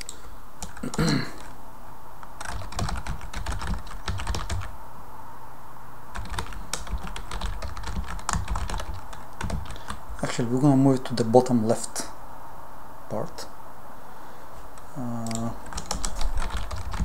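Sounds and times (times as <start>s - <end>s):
typing on computer keyboard: 0.0s - 1.5s, 2.4s - 4.7s, 6.2s - 10.0s, 15.2s - 17.0s.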